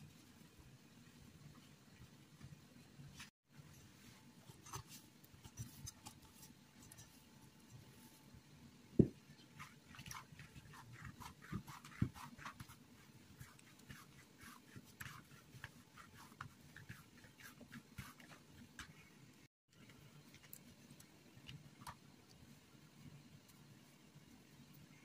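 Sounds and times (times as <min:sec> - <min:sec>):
hands kneading dough: 0:09.0 - 0:19.2.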